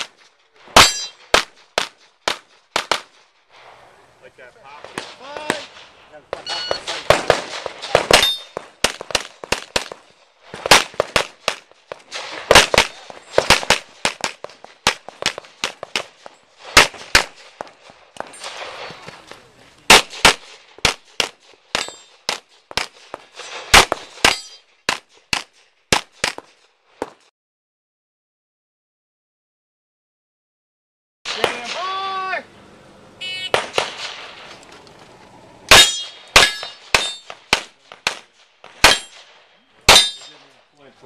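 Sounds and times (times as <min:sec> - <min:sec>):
pistol shots: 0:00.0 - 0:03.3, 0:04.8 - 0:19.2, 0:19.9 - 0:27.2, 0:33.4 - 0:34.5, 0:35.7 - 0:40.5.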